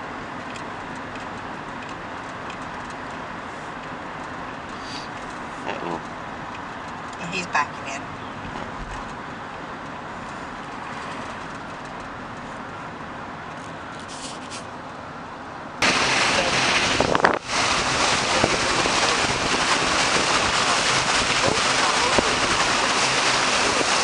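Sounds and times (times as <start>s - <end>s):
car road noise: 0.0s - 24.0s
wind buffeting microphone: 15.8s - 24.0s.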